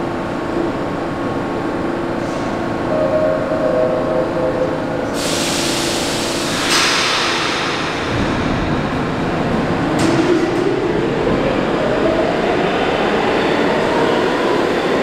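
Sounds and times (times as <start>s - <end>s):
subway train rumbling on rails: 0.0s - 15.0s
hissing wash of noise: 4.9s - 8.2s.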